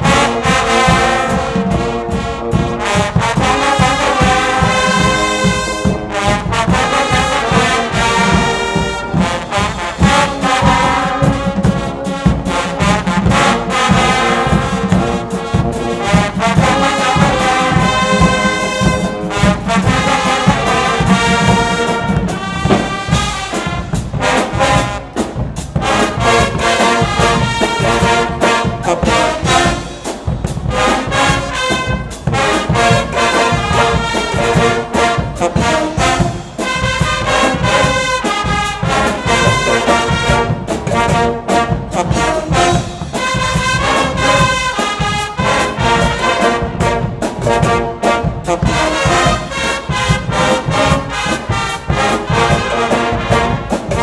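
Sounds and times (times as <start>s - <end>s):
brass band playing: 0.0s - 54.0s.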